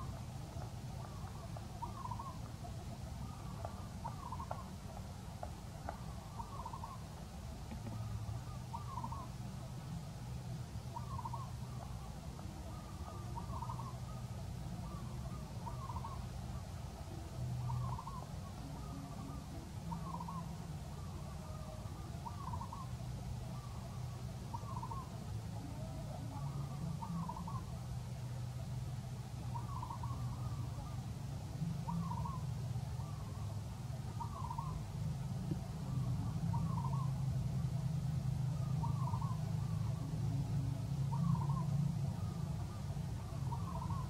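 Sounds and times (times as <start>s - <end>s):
low steady hum: 0.0s - 44.0s.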